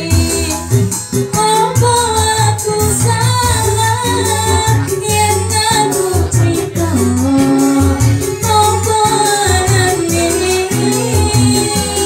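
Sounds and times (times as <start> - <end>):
live band music: 0.0 - 12.0
woman singing through pa: 0.0 - 12.0.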